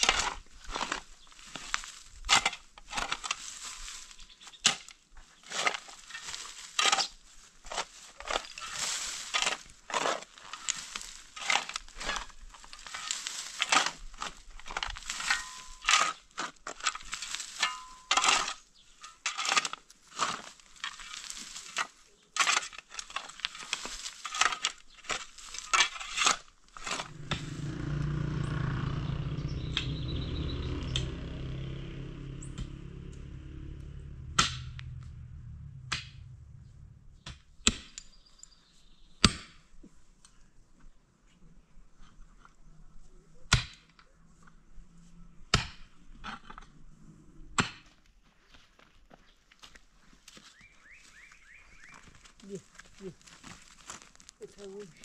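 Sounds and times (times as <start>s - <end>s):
low rumble: 26.9s - 37.9s.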